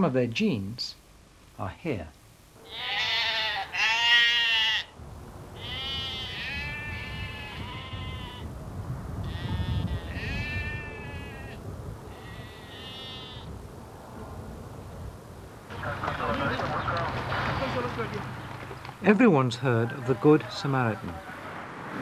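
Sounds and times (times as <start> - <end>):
sheep bleating: 2.6 - 4.9, 5.6 - 8.5, 9.2 - 13.5.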